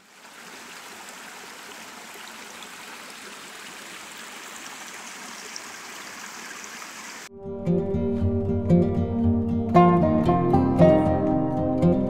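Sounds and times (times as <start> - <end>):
creek rushing over stones: 0.0 - 7.3.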